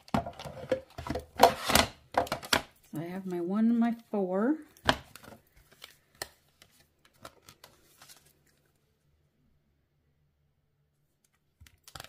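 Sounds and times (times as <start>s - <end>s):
cardstock and plates rustling: 0.0s - 8.7s.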